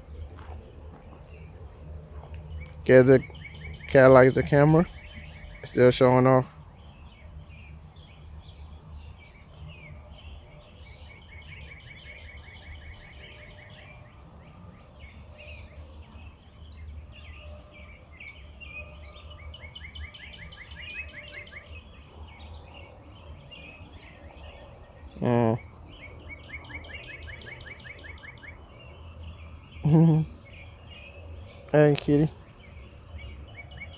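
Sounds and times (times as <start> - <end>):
birds singing and chirping: 0.0 - 33.9
bird fast trill: 25.2 - 28.8
person short vocal sound: 29.8 - 30.4.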